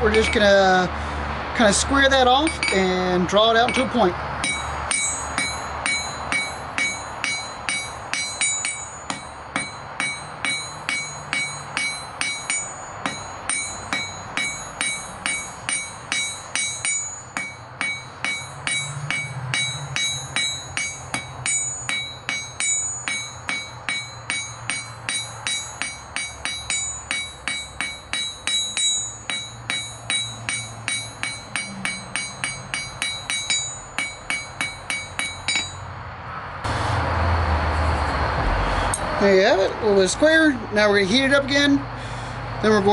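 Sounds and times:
hammer striking steel on anvil: 0.0s - 0.6s, 2.4s - 3.0s, 3.6s - 35.9s
metallic ring of anvil: 2.4s - 2.9s, 3.6s - 35.9s.

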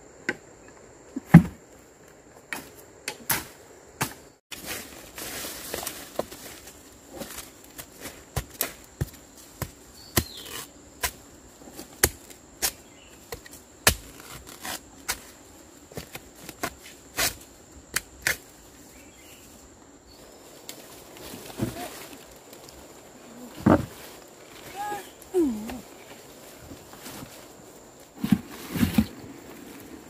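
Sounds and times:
machete chopping into soil: 2.5s - 4.8s, 8.4s - 11.2s, 11.8s - 15.3s, 16.0s - 18.5s.

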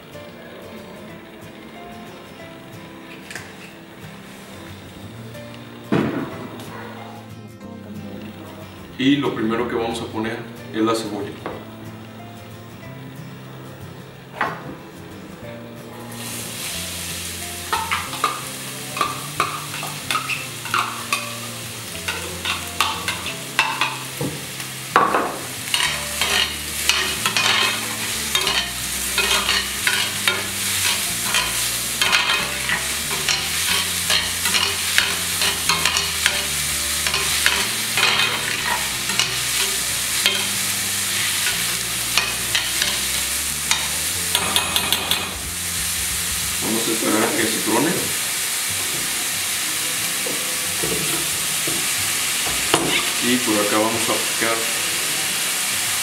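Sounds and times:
onion sizzling in oil: 0.0s - 6.8s, 15.1s - 56.0s
metal utensil scraping a pan: 17.7s - 24.1s, 25.7s - 47.6s.

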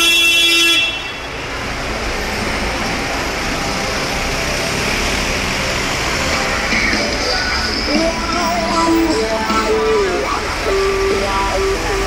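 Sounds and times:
vehicle horn: 0.0s - 1.4s
city street traffic: 0.0s - 12.0s.

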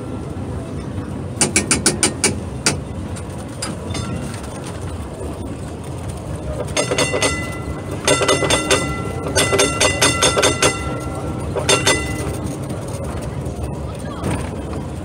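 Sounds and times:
tram running rumble: 0.0s - 15.0s
tram warning bell ringing: 3.6s - 4.7s, 6.4s - 14.0s.

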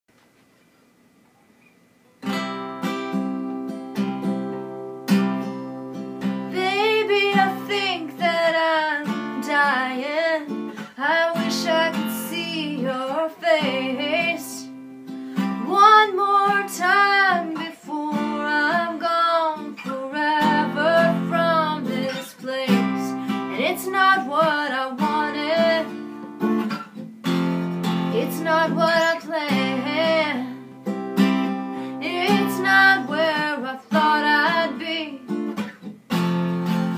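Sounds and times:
acoustic guitar: 1.6s - 36.9s
woman singing: 6.5s - 14.8s, 15.5s - 26.2s, 28.1s - 30.8s, 31.8s - 35.4s.

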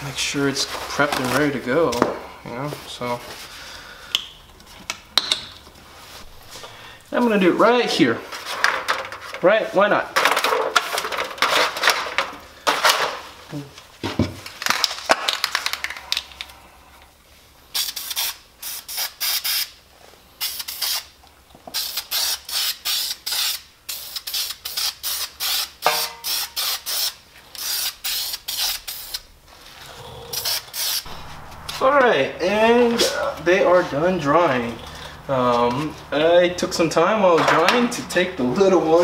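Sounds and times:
aerosol spray hissing bursts: 17.8s - 19.7s, 30.4s - 31.1s.

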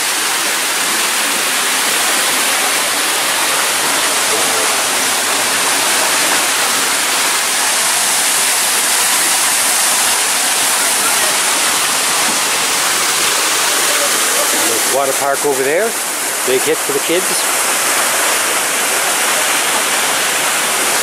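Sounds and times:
water rushing and splashing: 0.0s - 21.0s.

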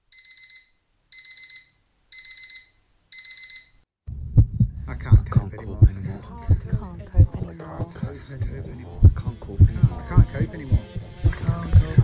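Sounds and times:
alarm clock beeping: 0.1s - 3.8s
low hum: 4.1s - 12.0s.

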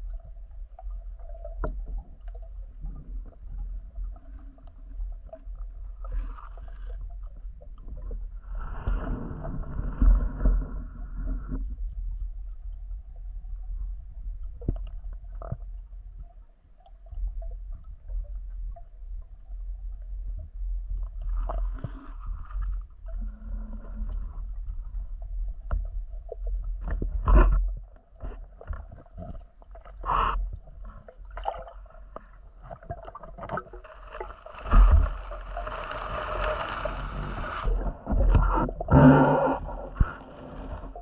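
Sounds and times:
low muffled underwater rumble: 0.0s - 41.0s
underwater clicks and gurgles: 0.0s - 41.0s
rush of water: 33.4s - 41.0s.

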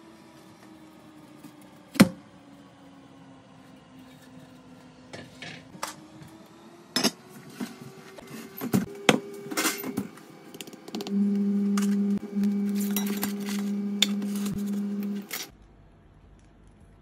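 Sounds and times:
low hum: 11.0s - 15.5s.

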